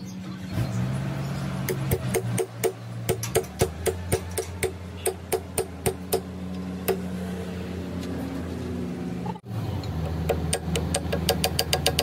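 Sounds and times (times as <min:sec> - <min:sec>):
small hammer tapping metal: 0:09.9 - 0:12.0.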